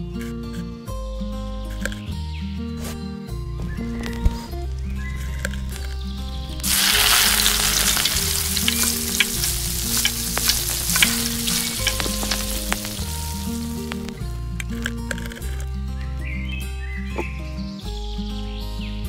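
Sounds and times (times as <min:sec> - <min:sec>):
food deep-frying in sizzling oil: 0:06.6 - 0:14.1
crackling pops: 0:06.6 - 0:15.6.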